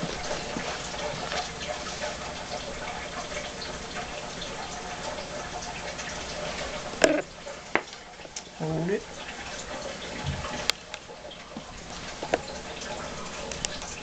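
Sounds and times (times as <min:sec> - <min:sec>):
water trickling: 0:00.0 - 0:14.0.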